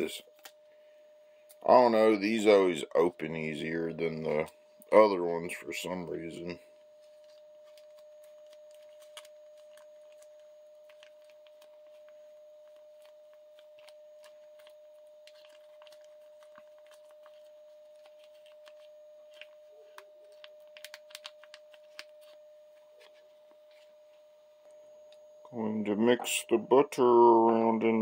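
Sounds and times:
faint steady hum: 0.0 - 28.0
plastic packet crinkling and clicking: 7.0 - 23.9.

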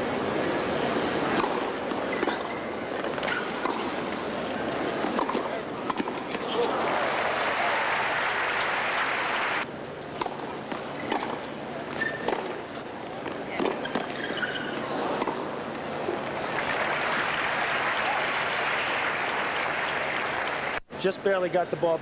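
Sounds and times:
crowd murmur: 3.8 - 9.6, 14.6 - 20.8
crowd applauding: 6.6 - 9.6, 16.5 - 20.8.

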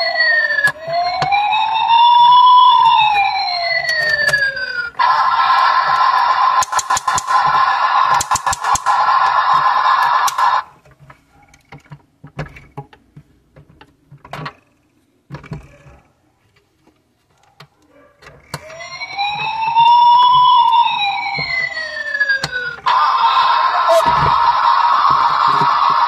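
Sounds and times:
toy electronic siren wailing: 0.0 - 10.8, 18.5 - 26.0
toy electronic sound module: 0.0 - 10.8, 18.6 - 26.0
plastic clicks and knocks: 10.8 - 14.6.

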